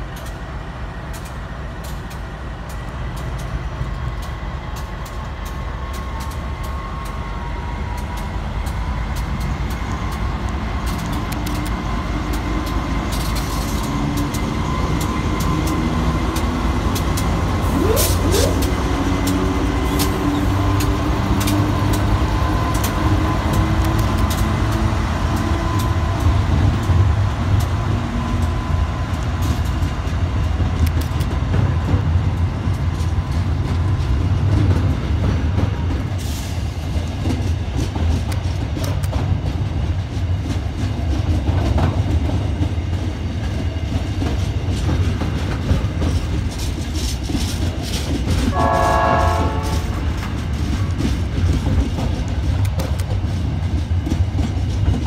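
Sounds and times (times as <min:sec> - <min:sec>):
freight train rumbling past: 0:00.0 - 0:55.0
wheels clacking over rail joints: 0:00.0 - 0:55.0
train horn: 0:48.5 - 0:50.0.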